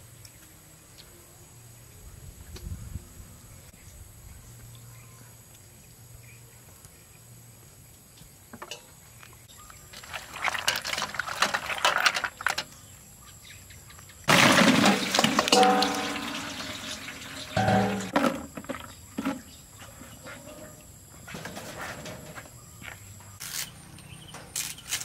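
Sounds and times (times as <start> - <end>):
liquid pouring: 14.3 - 18.1.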